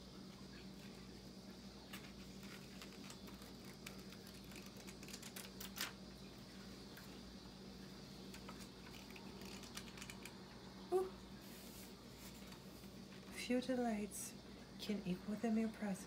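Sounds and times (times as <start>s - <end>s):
steady low hum: 0.0s - 16.0s
book pages turning: 1.9s - 6.0s, 8.3s - 10.4s.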